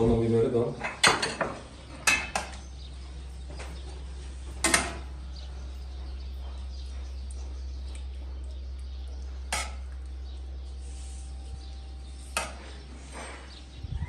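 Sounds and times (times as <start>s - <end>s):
dishes and utensils clinking: 0.8s - 2.6s.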